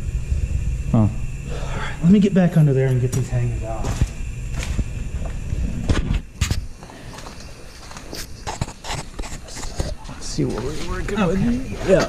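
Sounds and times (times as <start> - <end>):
footsteps on concrete: 3.8 - 5.5, 6.6 - 12.0.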